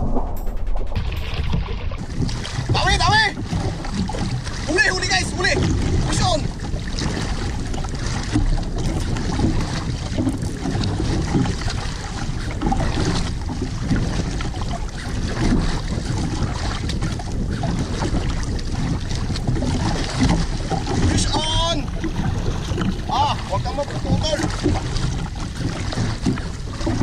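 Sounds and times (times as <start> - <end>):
wind buffeting microphone: 0.0 - 27.0
water slapping against boat hull: 1.0 - 27.0.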